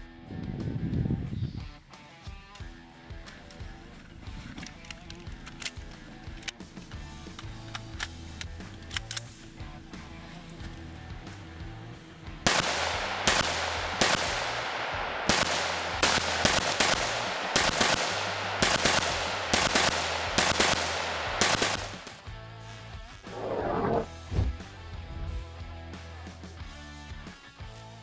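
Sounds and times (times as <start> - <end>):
background music: 0.0 - 28.0
pistol gunshots with echo: 12.4 - 22.3.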